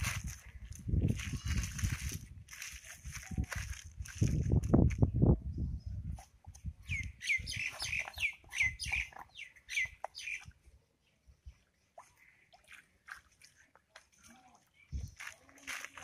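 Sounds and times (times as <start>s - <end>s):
bird chirping: 6.8s - 11.9s.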